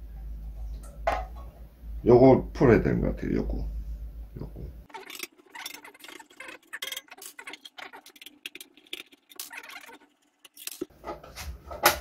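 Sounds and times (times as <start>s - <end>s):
screwdriver clicking and scraping metal: 10.4s - 10.9s.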